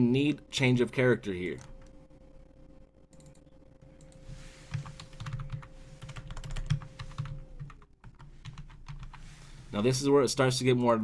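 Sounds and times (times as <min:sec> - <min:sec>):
computer keyboard typing: 0:03.1 - 0:03.4, 0:04.0 - 0:09.2.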